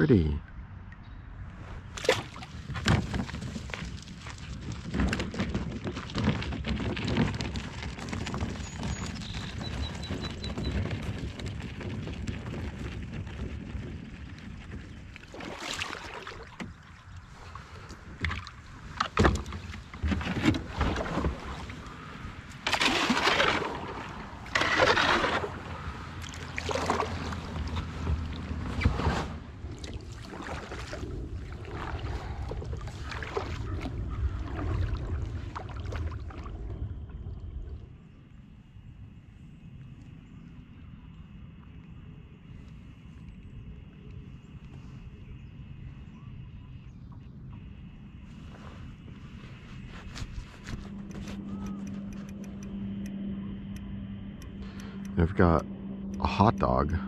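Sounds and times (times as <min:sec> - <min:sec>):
paddle splashes and drips: 0:01.9 - 0:28.9, 0:29.6 - 0:36.6.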